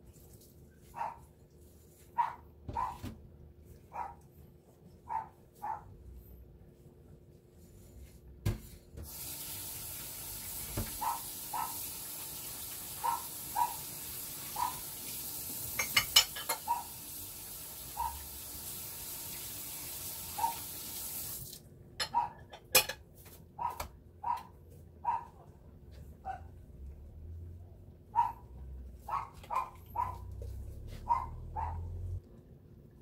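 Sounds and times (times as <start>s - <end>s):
water running from a tap: 9.0s - 21.7s.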